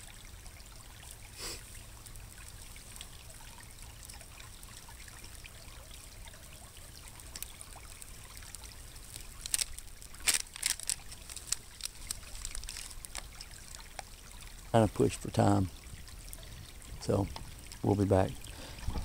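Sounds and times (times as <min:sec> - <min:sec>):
creek trickling: 0:00.0 - 0:19.0
plastic packet crinkling: 0:09.0 - 0:14.0.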